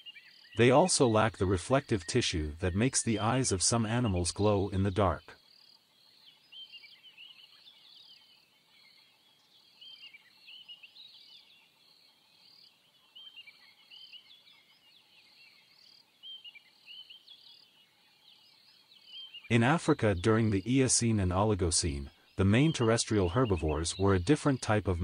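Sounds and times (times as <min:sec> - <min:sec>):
insect chirping in steady pulse: 0:00.0 - 0:25.0.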